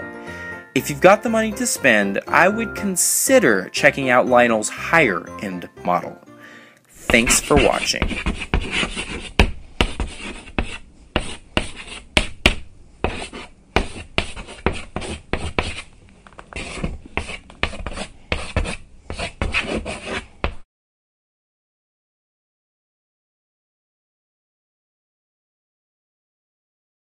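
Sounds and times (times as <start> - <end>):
pen scratching on paper: 7.0 - 15.9, 16.6 - 20.6.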